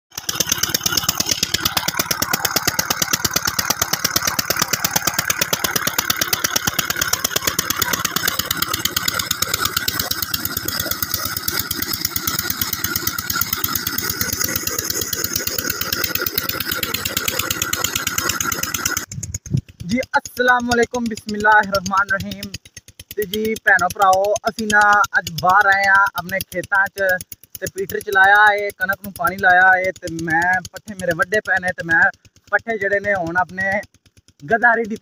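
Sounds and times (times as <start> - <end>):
water gushing from pipe: 0.1 - 19.1
diesel engine running: 0.1 - 35.0.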